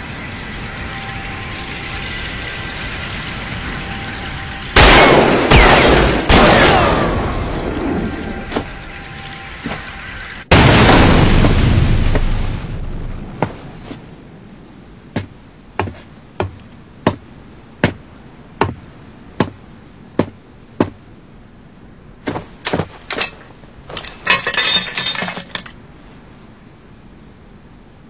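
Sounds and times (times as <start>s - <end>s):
debris clinking and crunching: 22.6s - 25.8s.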